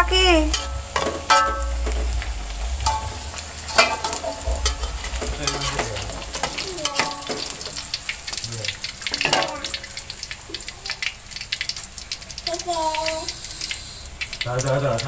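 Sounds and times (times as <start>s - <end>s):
deep-frying sizzling in oil: 0.0s - 15.0s
metal utensils scraping and clinking wok: 0.4s - 9.9s.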